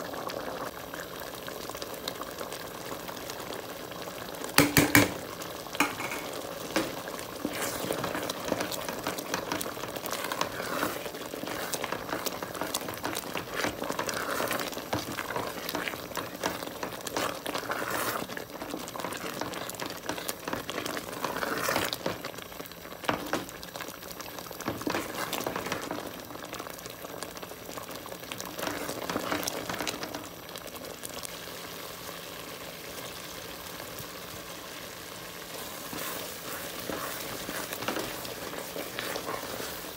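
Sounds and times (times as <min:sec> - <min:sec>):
curry bubbling in a pot: 0:00.0 - 0:39.9
spoon knocking against metal pot: 0:04.6 - 0:05.2, 0:05.8 - 0:06.3
wooden spoon stirring: 0:04.6 - 0:30.4, 0:35.4 - 0:39.9.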